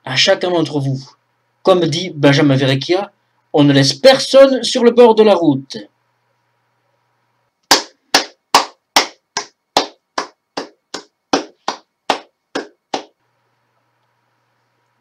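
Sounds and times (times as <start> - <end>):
person clapping slowly: 7.7 - 13.2.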